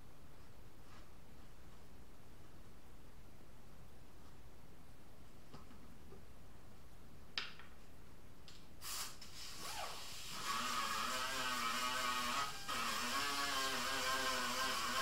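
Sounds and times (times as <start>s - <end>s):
air hiss: 8.8s - 12.0s.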